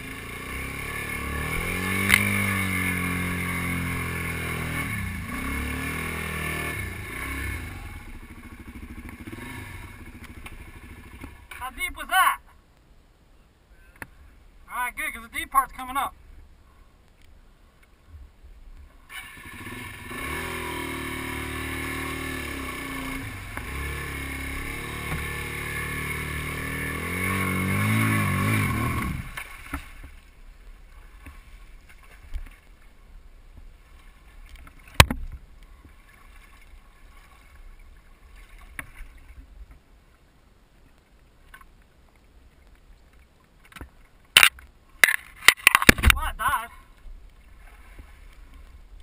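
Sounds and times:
motorcycle engine revving: 0.0 - 11.6, 19.1 - 30.1
water splashing off wheels: 0.0 - 11.7, 19.0 - 39.6
faint water sounds: 0.0 - 49.0.

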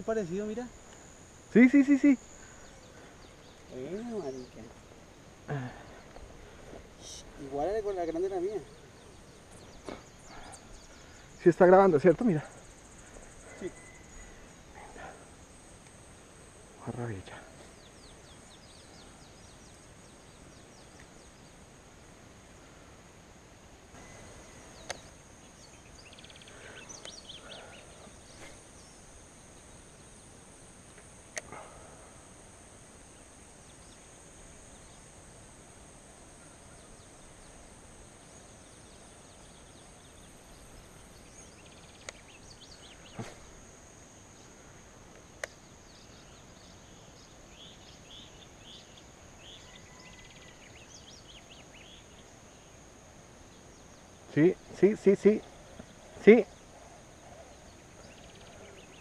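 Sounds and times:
faint bird chirps: 0.0 - 16.0, 23.9 - 30.5, 45.4 - 59.0
high-pitched insect drone: 0.0 - 21.7, 22.6 - 59.0.

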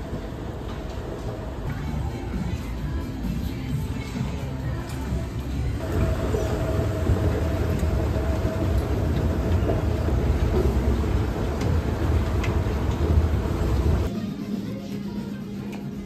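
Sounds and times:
escalator rumbling: 4.4 - 14.1.

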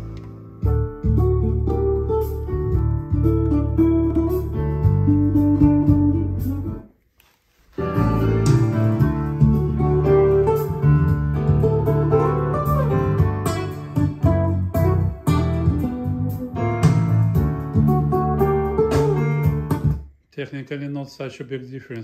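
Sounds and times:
music over loudspeakers: 7.8 - 20.0.

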